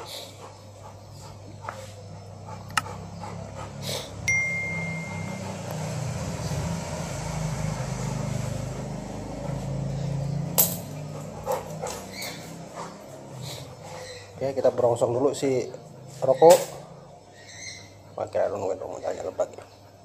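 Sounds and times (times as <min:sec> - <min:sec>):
vehicle engine rumble: 0:01.0 - 0:14.4.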